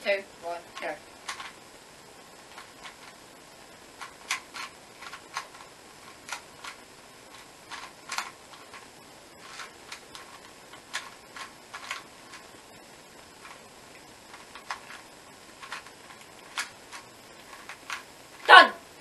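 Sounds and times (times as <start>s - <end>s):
puzzle cube clicking: 0.8s - 1.6s, 4.0s - 12.5s, 14.3s - 18.0s.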